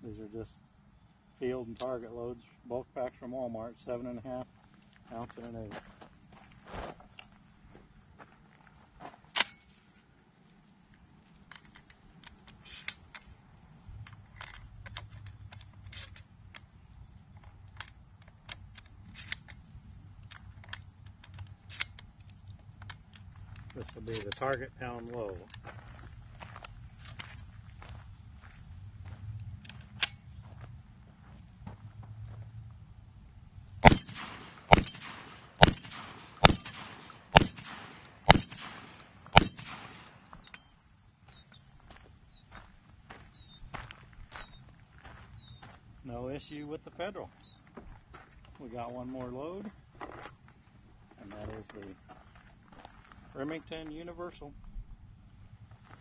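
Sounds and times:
low outdoor rumble: 0:09.7 - 0:56.0
shotgun action cycling: 0:33.8 - 0:40.2
shotgun shots: 0:33.8 - 0:40.4.

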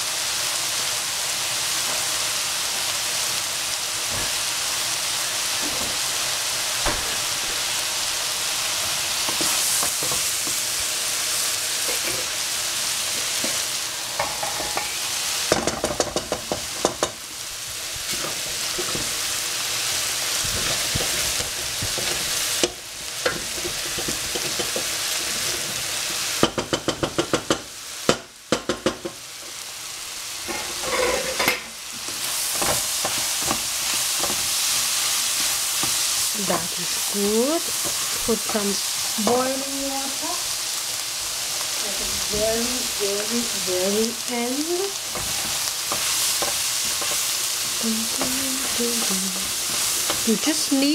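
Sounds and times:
food sizzling in a frying pan: 0:00.0 - 0:50.9.

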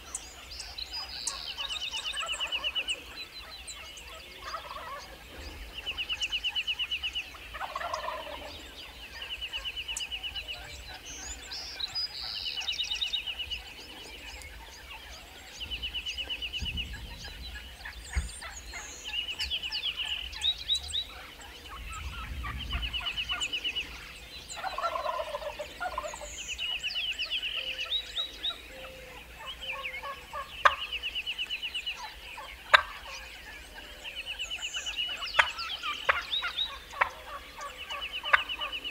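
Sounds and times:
bird calls: 0:00.0 - 0:38.9
turkeys gobbling: 0:01.2 - 0:03.2, 0:04.1 - 0:06.4, 0:07.3 - 0:09.8, 0:24.6 - 0:26.3, 0:28.8 - 0:31.0, 0:32.0 - 0:34.1, 0:35.0 - 0:38.9.

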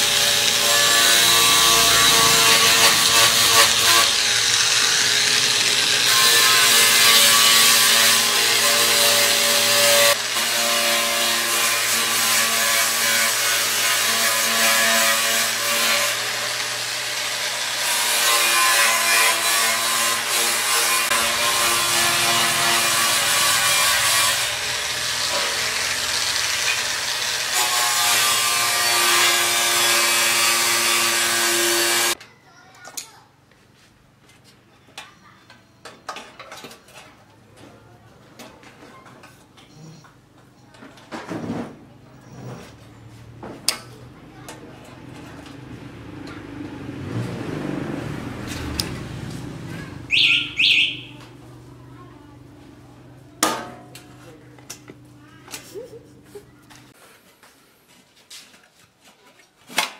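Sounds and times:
angle grinder grinding metal: 0:00.0 - 0:32.2.

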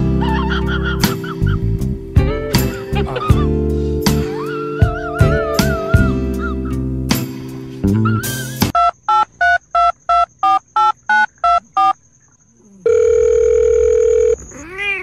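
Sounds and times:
long ringback tone: 0:12.8 - 0:14.5
telephone keypad tones: 0:12.9 - 0:14.4.

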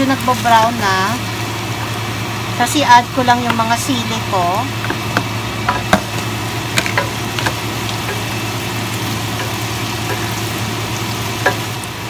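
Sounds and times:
garlic sizzling in oil: 0:00.0 - 0:12.0
spatula knocking on pan: 0:04.8 - 0:08.3, 0:11.4 - 0:11.7.

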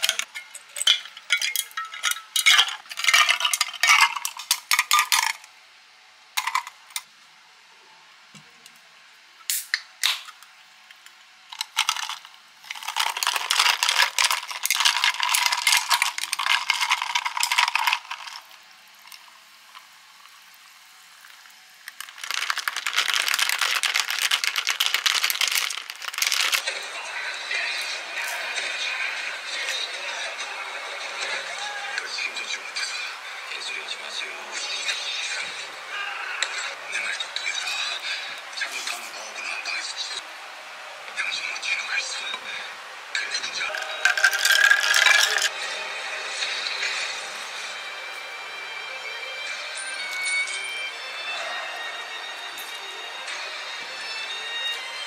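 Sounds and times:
soda water fizzing: 0:11.6 - 0:26.7, 0:43.6 - 0:45.5
spoon clinking against glass jar: 0:43.7 - 0:45.5.

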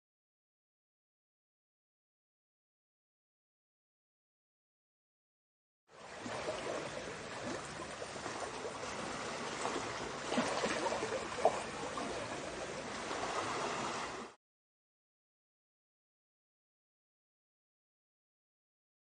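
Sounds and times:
water lapping and trickling: 0:05.9 - 0:14.4.

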